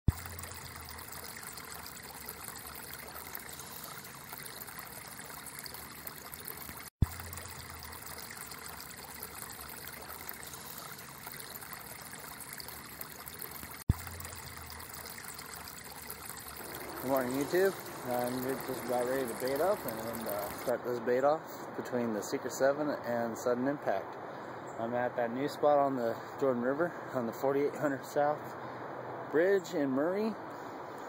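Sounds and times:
flowing river water: 0:00.1 - 0:20.9.

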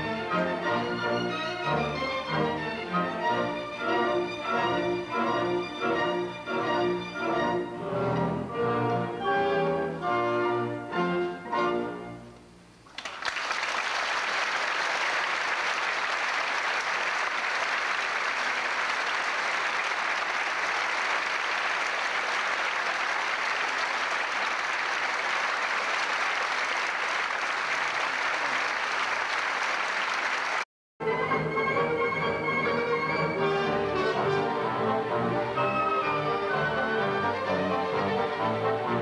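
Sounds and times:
orchestral music: 0:00.0 - 0:12.3, 0:31.0 - 0:39.0
audience applauding: 0:12.9 - 0:30.7.

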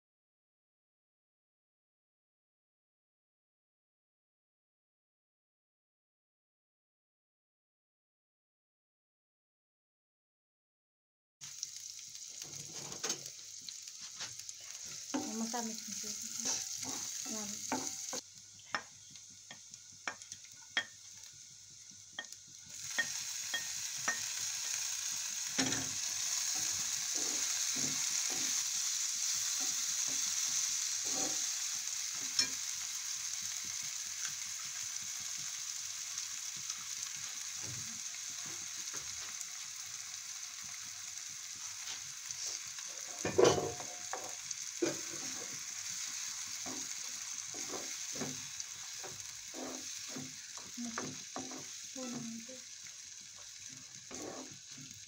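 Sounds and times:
vegetables sizzling in oil: 0:11.4 - 0:55.0
spatula scraping a pan: 0:12.4 - 0:18.9, 0:22.2 - 0:32.8, 0:41.6 - 0:52.5, 0:53.4 - 0:55.0.

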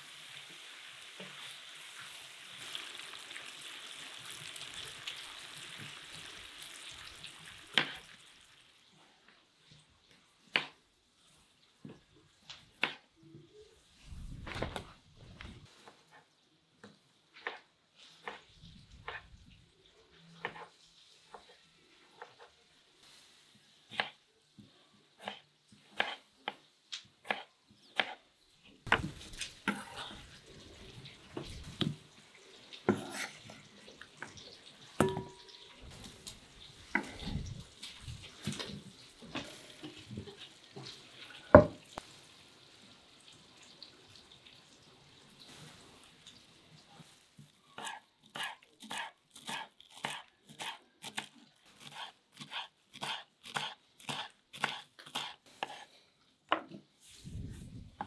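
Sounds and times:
knife cutting tomatoes on board: 0:23.9 - 0:24.2, 0:25.2 - 0:26.6, 0:27.2 - 0:28.2, 0:47.8 - 0:55.9
knife chopping herbs: 0:25.2 - 0:26.6, 0:47.8 - 0:55.9.

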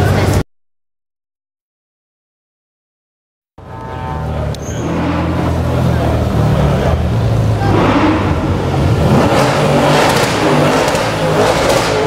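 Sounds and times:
sports car engines running: 0:03.6 - 0:12.0.

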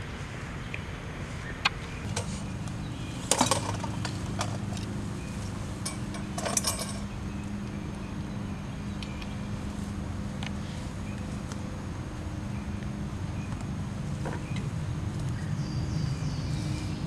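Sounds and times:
steady low hum: 0:00.0 - 0:17.0
belongings clinking and rustling: 0:03.2 - 0:04.9, 0:05.8 - 0:07.1.

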